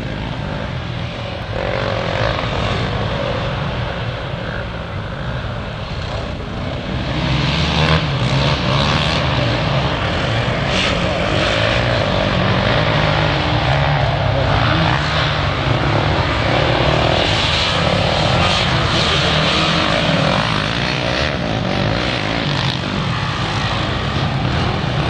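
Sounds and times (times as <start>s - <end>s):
quad engine revving: 6.4s - 25.0s.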